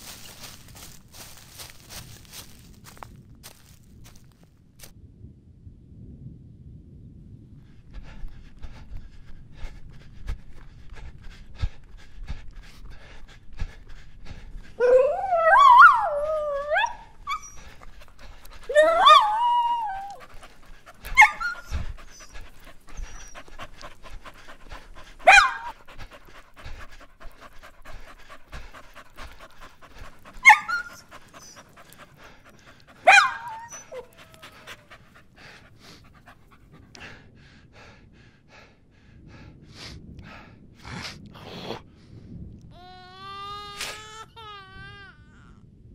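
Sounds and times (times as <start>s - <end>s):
dog wavering cries: 14.8s - 23.6s, 24.7s - 25.8s, 28.7s - 32.4s, 33.0s - 35.0s
dog barking: 25.2s - 25.8s, 30.4s - 30.9s, 33.0s - 34.1s.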